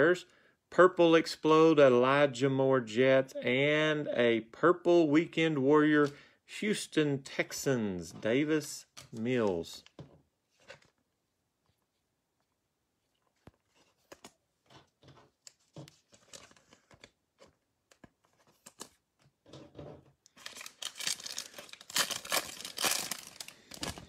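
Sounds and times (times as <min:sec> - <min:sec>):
foil wrapper tearing and crinkling: 0:20.3 - 0:24.0.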